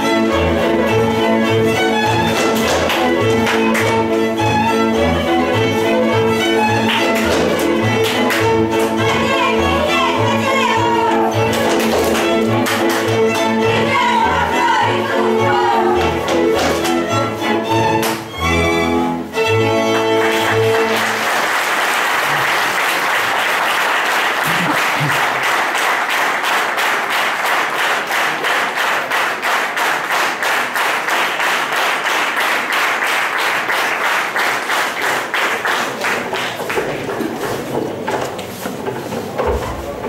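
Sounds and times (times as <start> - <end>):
fiddle and double bass playing: 0.0 - 21.2
rhythmic clapping: 0.2 - 18.5, 19.5 - 40.0
audience applause: 6.8 - 8.4, 19.9 - 38.5.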